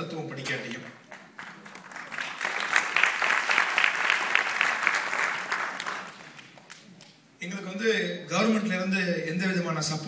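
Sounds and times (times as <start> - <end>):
audience applauding: 1.0 - 6.8.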